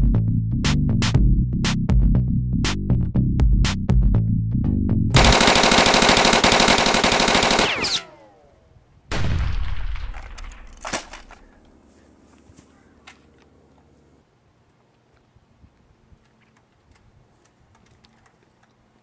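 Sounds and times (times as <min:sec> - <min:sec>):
machine-gun fire: 0:05.2 - 0:08.3
loud blast: 0:09.1 - 0:10.6.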